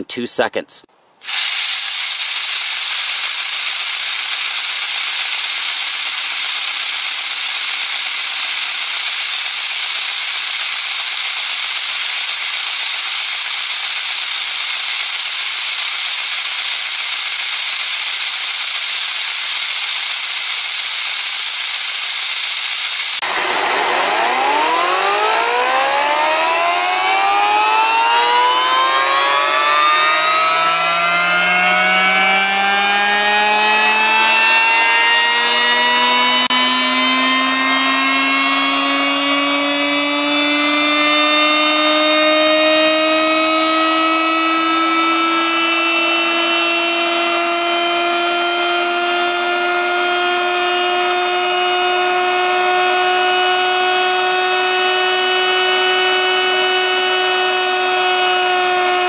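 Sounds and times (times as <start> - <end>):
compressed air hissing: 1.2 - 23.5
turbine whine rising in pitch: 1.2 - 59.0.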